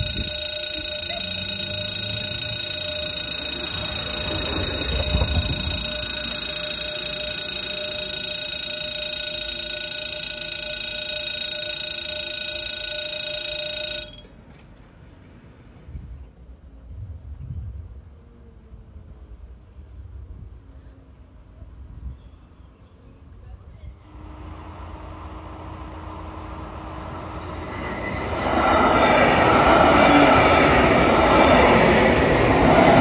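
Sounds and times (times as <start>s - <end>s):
level crossing warning bell: 0.0s - 14.4s.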